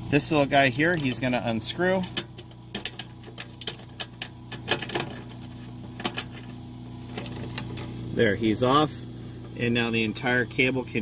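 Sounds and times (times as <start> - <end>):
low hum: 0.0 - 11.0
connector clicking and scraping: 0.8 - 7.9.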